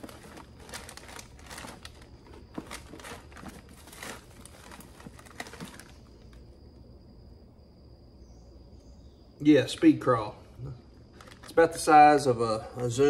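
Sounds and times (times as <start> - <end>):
plastic packs crinkling: 0.0 - 6.4, 11.1 - 11.9.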